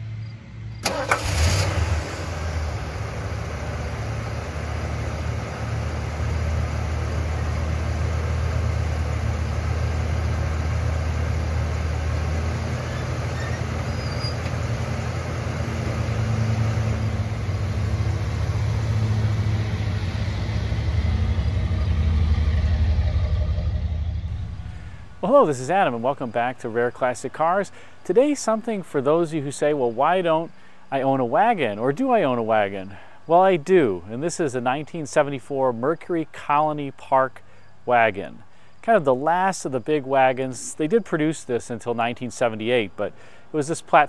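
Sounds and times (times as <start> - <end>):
car engine starting and idling: 0.0 - 26.4.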